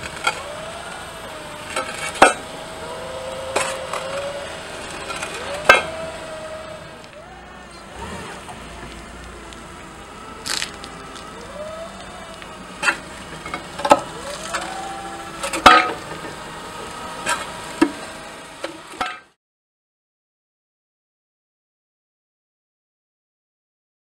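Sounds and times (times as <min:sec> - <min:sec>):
paving slab cracking: 0:00.0 - 0:18.0
forklift engine running: 0:00.0 - 0:19.4.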